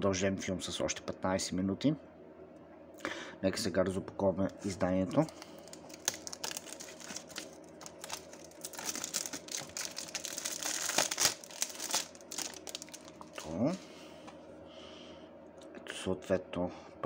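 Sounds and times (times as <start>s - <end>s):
plastic shrink-wrap tearing: 5.2s - 13.6s.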